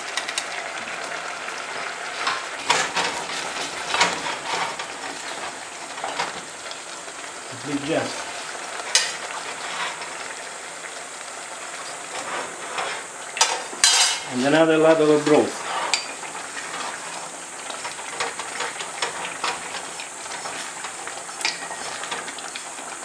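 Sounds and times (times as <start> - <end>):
rice simmering and bubbling: 0.0 - 23.0
wooden spoon scraping metal pot: 2.2 - 6.4, 11.8 - 14.6, 15.4 - 22.5.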